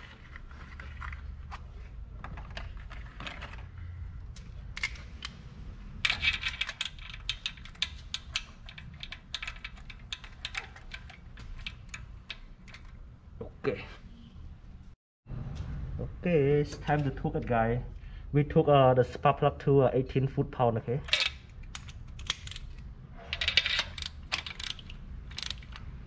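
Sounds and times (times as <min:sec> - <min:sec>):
low shop hum: 0:00.0 - 0:26.0
ratchet clicking: 0:23.7 - 0:25.9.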